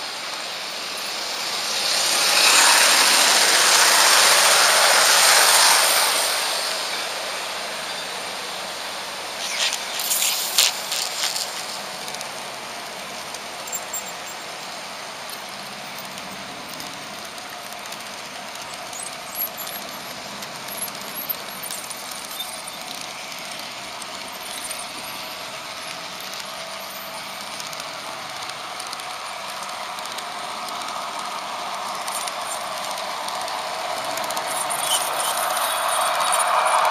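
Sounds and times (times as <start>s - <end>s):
model train whirring on rails: 0.0s - 36.9s
passing model train rush: 0.0s - 36.9s
sharp clicks and rattles: 9.4s - 36.9s.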